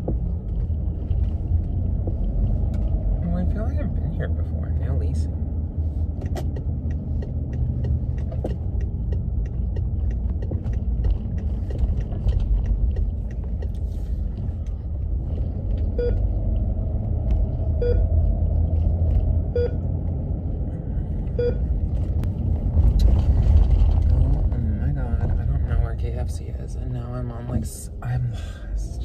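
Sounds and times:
car cabin road and engine rumble: 0.0s - 29.0s
light regular ticking: 6.1s - 17.3s
short beeps: 16.0s - 16.2s, 17.8s - 18.1s, 19.6s - 19.8s, 21.4s - 21.7s.

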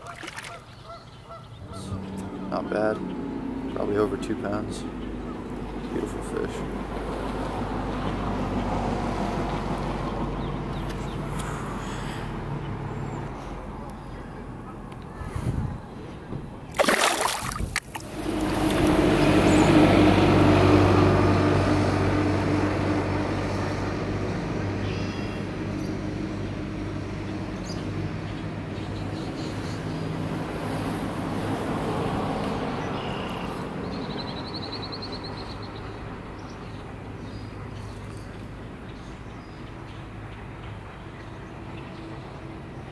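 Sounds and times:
brief splash: 0.0s - 0.6s, 16.7s - 18.1s
passing vehicle engine: 1.6s - 16.4s, 17.1s - 38.6s.

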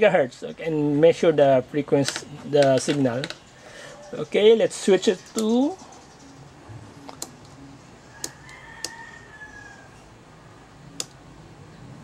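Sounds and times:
low steady hum: 0.0s - 12.0s
switch and knob clicks: 11.0s - 11.2s.

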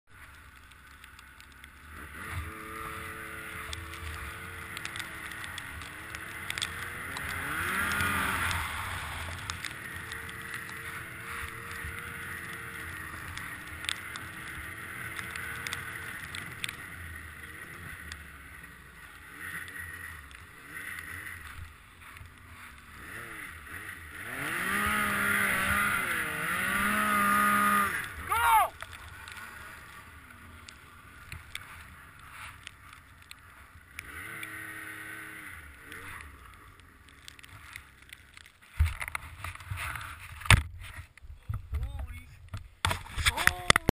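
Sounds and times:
snowmobile engine under load: 0.2s - 43.9s.

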